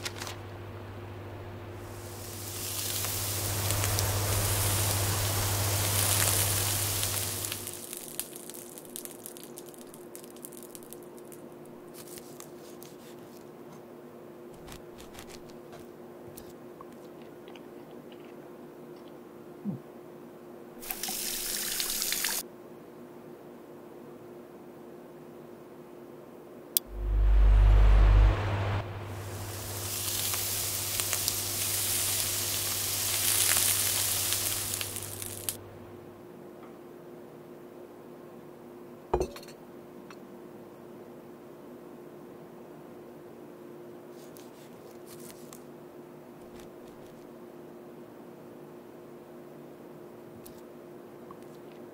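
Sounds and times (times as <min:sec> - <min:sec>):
deep rumble: 0:00.0 - 0:07.8, 0:26.8 - 0:36.0
faint steady hum: 0:00.0 - 0:20.8, 0:21.4 - 0:51.9
steak sizzling in a frying pan: 0:01.8 - 0:11.3, 0:20.9 - 0:22.4, 0:29.3 - 0:35.6.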